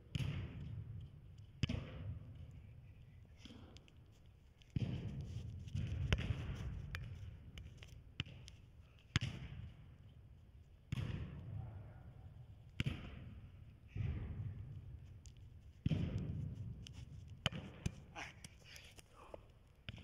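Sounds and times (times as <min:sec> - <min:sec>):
football kicks: 0:04.7 - 0:08.4, 0:10.9 - 0:11.5, 0:14.0 - 0:15.0, 0:15.8 - 0:18.5.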